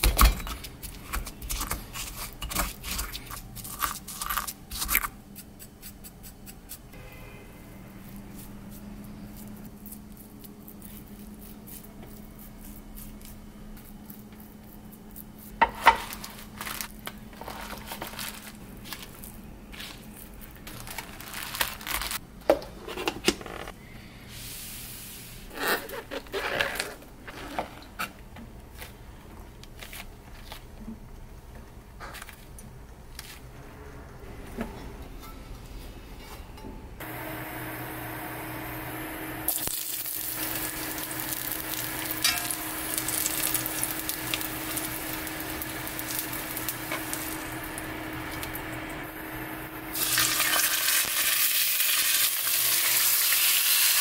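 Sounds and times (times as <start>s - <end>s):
paper rustling: 16.0s - 22.2s.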